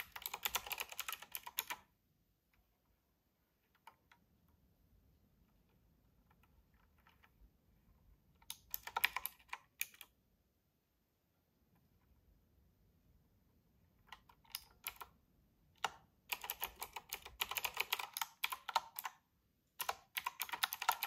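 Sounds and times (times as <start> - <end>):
mechanical keyboard clicking: 0.0 - 1.9, 8.4 - 10.1, 14.0 - 15.2, 15.8 - 21.0.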